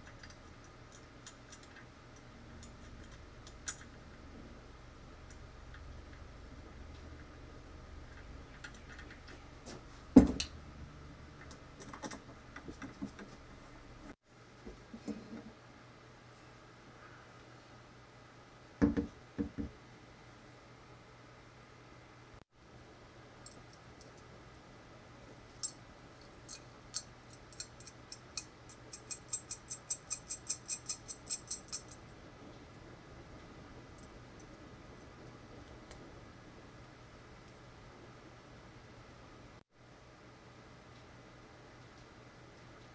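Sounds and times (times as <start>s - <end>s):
metal parts clicking and tapping: 0.0s - 4.1s, 25.6s - 32.1s.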